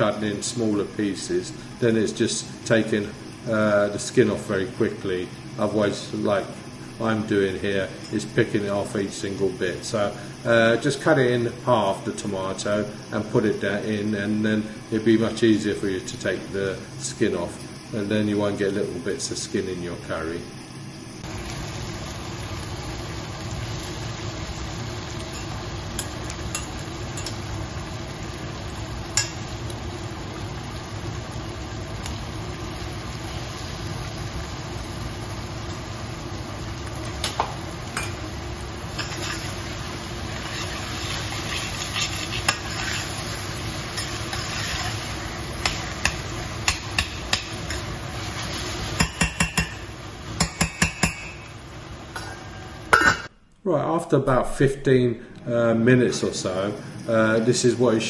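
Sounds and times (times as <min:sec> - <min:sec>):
vegetables sizzling in oil: 0:00.0 - 0:53.3
metal tongs clicking against pan: 0:26.0 - 0:27.4
spoon stirring and tapping pan: 0:45.6 - 0:47.9, 0:49.0 - 0:51.5.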